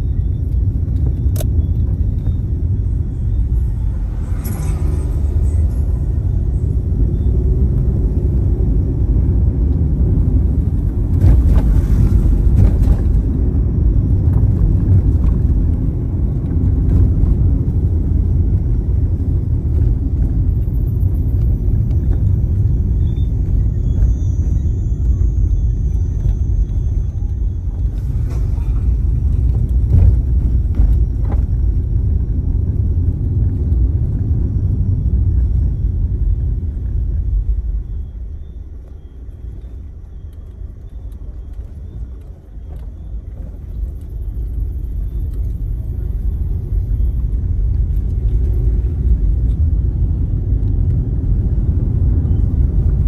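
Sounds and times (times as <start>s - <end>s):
car driving on rough road: 0.0s - 53.0s
thumps from road surface: 28.2s - 31.7s.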